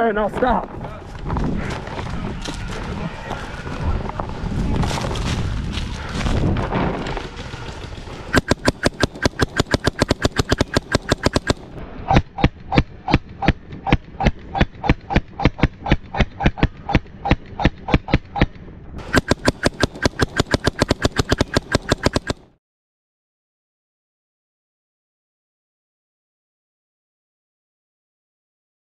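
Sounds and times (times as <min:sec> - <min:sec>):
paintball markers firing rapidly: 0:08.3 - 0:11.8, 0:12.4 - 0:22.6.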